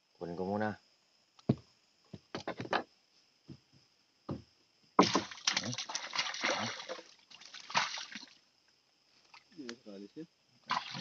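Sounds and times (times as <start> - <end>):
faint knocks: 3.5 - 4.5
river water splashing: 5.0 - 8.4, 10.7 - 11.0.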